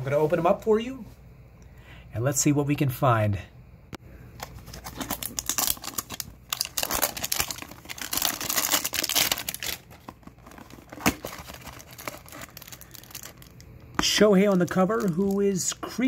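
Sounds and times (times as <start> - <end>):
plastic shrink-wrap tearing: 4.7 - 15.6.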